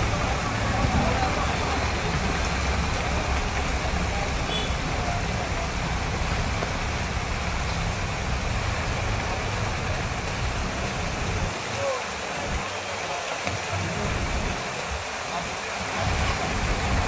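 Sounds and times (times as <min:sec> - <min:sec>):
heavy rain on wet street: 0:00.0 - 0:17.0.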